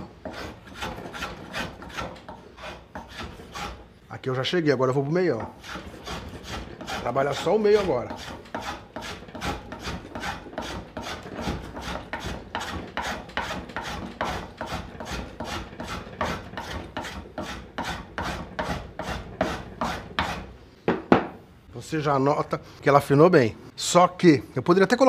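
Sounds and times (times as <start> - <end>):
hand plane shaving wood: 0.2 - 3.8, 5.5 - 20.5.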